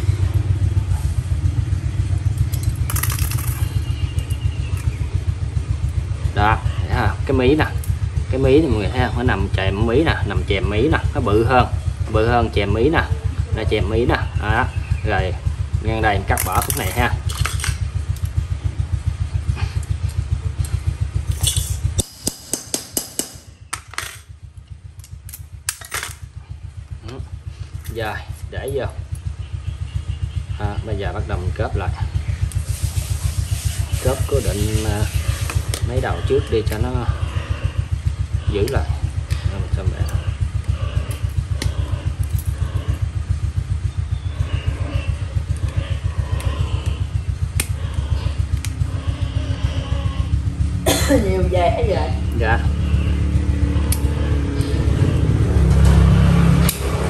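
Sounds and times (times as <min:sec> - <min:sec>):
low pulsing motor hum: 0:00.0 - 0:57.0
metal tools clinking: 0:02.2 - 0:05.0, 0:16.3 - 0:18.4, 0:21.3 - 0:22.1, 0:23.7 - 0:24.3, 0:25.0 - 0:26.3
wire cutters snipping wire: 0:16.3 - 0:18.4, 0:35.2 - 0:36.0, 0:47.6 - 0:47.8, 0:53.8 - 0:54.8, 0:56.6 - 0:57.0.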